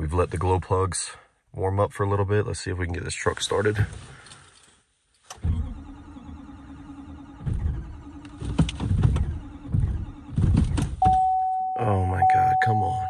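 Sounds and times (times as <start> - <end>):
starter cranking diesel engine: 5.3 - 10.5.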